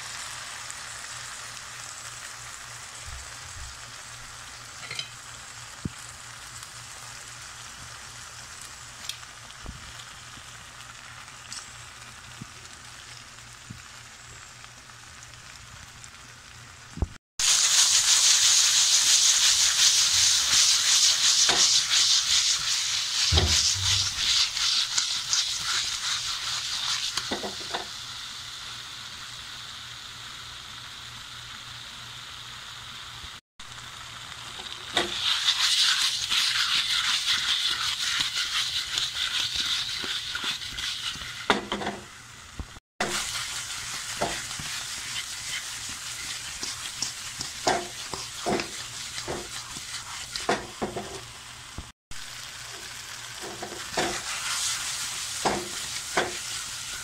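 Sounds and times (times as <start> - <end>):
chicken sizzling in a frying pan: 0.0 - 57.0
utensil knocking and scraping pan: 23.2 - 24.8, 34.9 - 42.0, 43.0 - 51.2, 53.4 - 54.7, 55.4 - 56.4.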